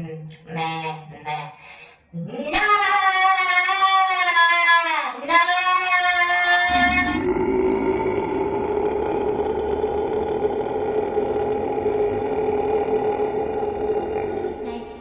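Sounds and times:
loud buzzing drone: 0:06.7 - 0:08.2.

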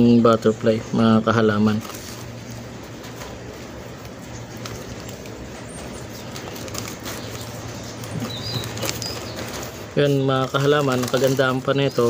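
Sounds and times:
hands rustling potting soil: 0:00.0 - 0:12.0
low continuous hum: 0:00.0 - 0:12.0
high bird chirp: 0:05.4 - 0:10.2.

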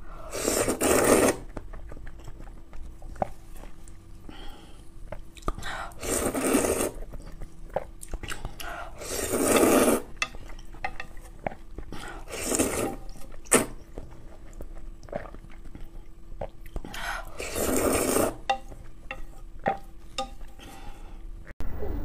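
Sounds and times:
noodles being slurped: 0:00.3 - 0:01.6, 0:05.4 - 0:10.1, 0:11.5 - 0:18.6.

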